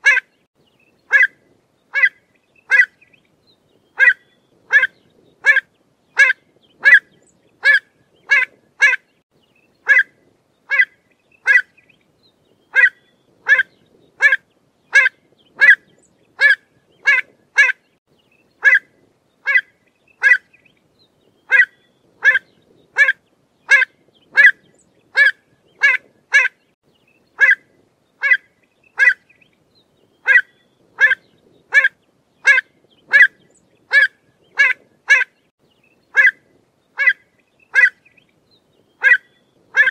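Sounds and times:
bird calling sharp notes: 4.0 - 5.6, 12.7 - 15.8, 21.5 - 26.6, 30.2 - 35.3, 39.0 - 39.9.

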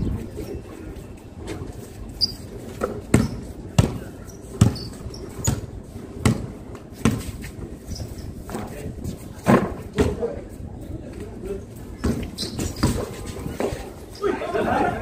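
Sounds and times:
basketball bouncing on concrete: 2.8 - 7.3, 12.0 - 13.7.

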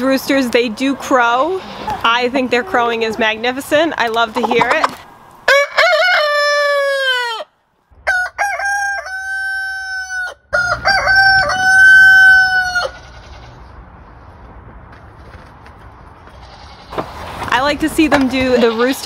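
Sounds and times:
roosters crowing: 4.2 - 13.7.

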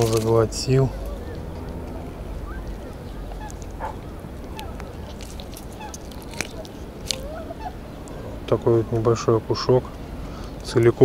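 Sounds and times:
steady low rumble: 0.0 - 11.0
faint bird calls: 2.4 - 8.4.

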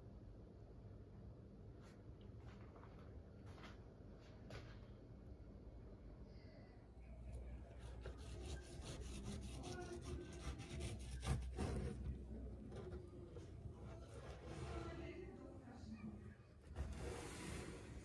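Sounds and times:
knife sawing through pie crust: 7.8 - 12.1
knife scraping wooden board: 7.8 - 12.2.

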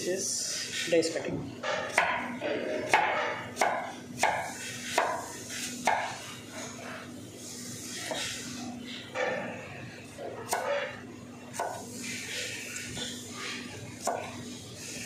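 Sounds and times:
knife chopping on cutting board: 1.8 - 6.2, 10.5 - 10.9, 11.5 - 11.9, 14.0 - 14.4.

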